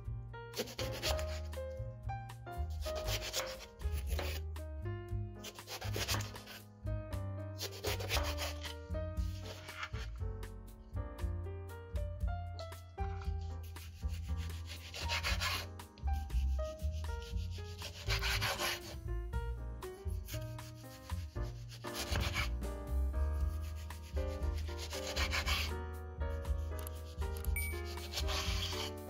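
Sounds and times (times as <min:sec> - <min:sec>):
background music: 0:00.0 - 0:29.0
knife sawing through tomatoes: 0:00.6 - 0:01.6, 0:02.7 - 0:04.4, 0:05.4 - 0:06.6, 0:07.6 - 0:10.0, 0:13.6 - 0:19.1, 0:20.1 - 0:22.6, 0:23.4 - 0:25.8, 0:26.5 - 0:29.0.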